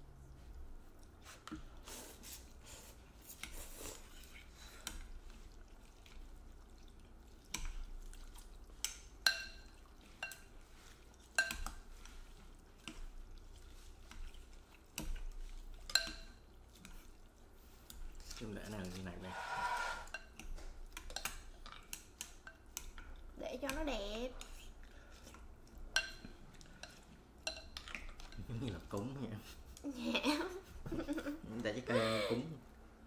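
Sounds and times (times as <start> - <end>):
chopsticks clinking on ceramic bowls: 8.8 - 10.6, 11.3 - 11.8, 15.8 - 16.5, 25.2 - 29.1.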